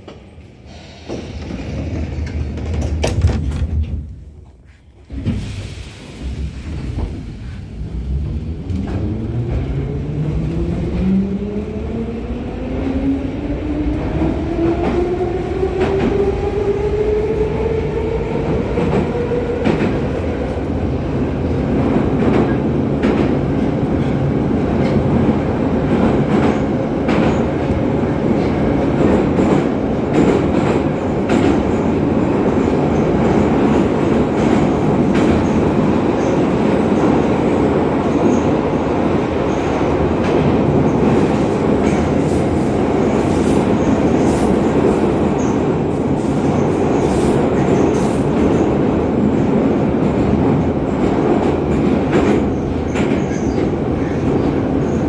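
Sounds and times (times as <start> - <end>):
wheels rumbling over rail joints: 0.0 - 5.4.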